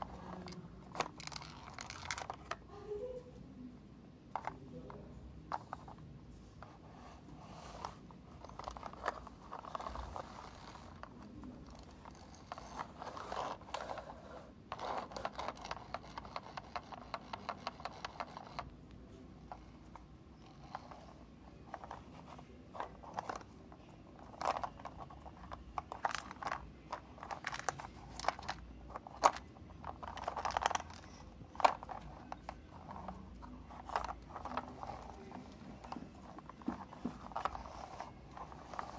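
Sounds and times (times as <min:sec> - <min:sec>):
toy scraping on carpet: 0:06.6 - 0:18.4, 0:29.8 - 0:38.9.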